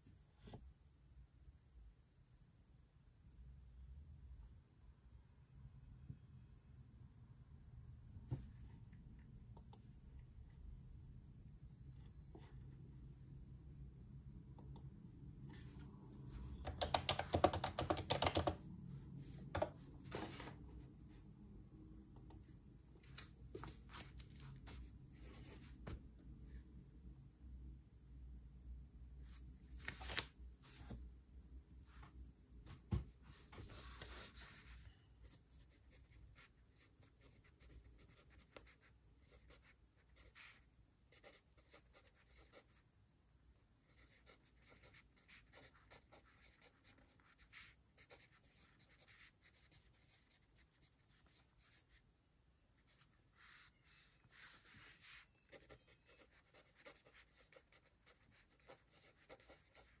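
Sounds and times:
paper rustle: 29.8 - 31.0
pen scratching on paper: 43.9 - 52.0, 52.9 - 60.0.

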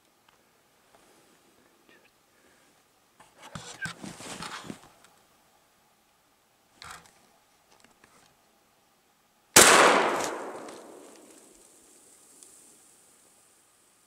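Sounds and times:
gunshot echoing: 9.6 - 11.4.

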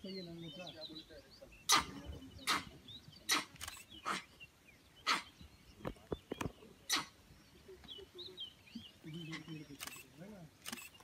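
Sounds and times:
faint bird chirps: 0.0 - 11.0
monkey alarm barks: 1.7 - 4.3.

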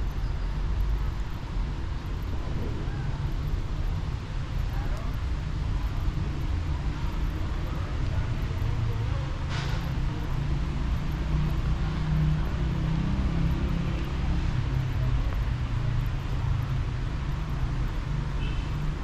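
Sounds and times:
city traffic rumble: 0.0 - 19.0
brief hiss: 9.5 - 9.9.

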